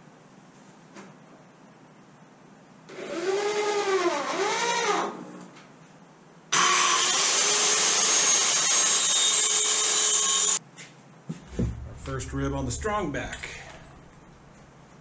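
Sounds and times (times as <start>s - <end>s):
cordless drill driving screw: 6.6s - 10.6s
power tool high whine: 6.6s - 10.6s.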